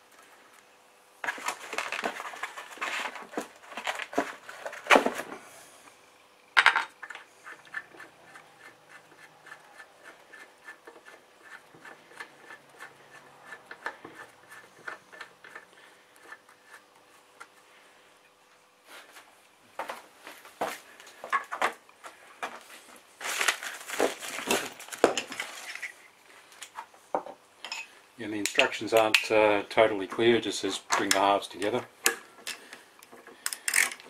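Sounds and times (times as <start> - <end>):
metal parts clattering and knocking: 33.5 - 34.0.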